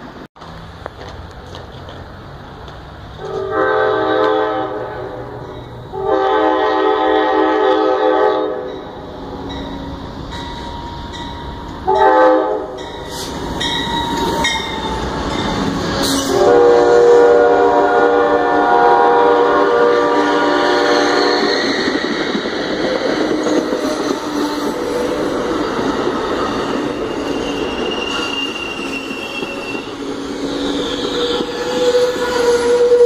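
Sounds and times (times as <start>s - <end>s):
train rumbling and clattering on rails: 0.0s - 33.0s
train horn blasts: 3.2s - 8.9s, 11.8s - 13.3s, 16.0s - 21.8s, 26.9s - 33.0s.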